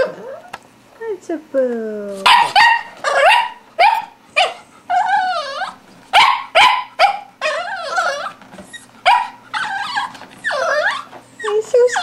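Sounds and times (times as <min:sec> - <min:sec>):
dog warbling cries: 0:00.0 - 0:00.6, 0:02.2 - 0:12.0
dog barking: 0:02.2 - 0:04.6, 0:06.1 - 0:07.3, 0:09.0 - 0:09.4.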